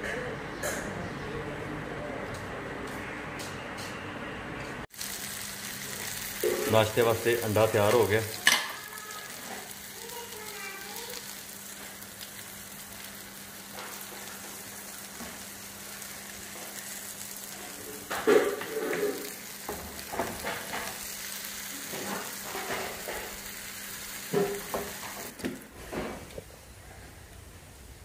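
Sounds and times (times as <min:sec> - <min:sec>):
omelette sizzling in oil: 0:04.9 - 0:25.5
spatula scraping a frying pan: 0:18.1 - 0:19.4.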